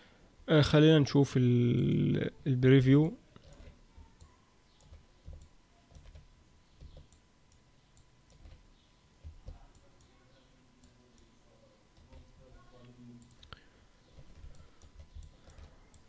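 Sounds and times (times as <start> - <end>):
computer mouse clicks: 3.4 - 8.6, 13.2 - 16.0.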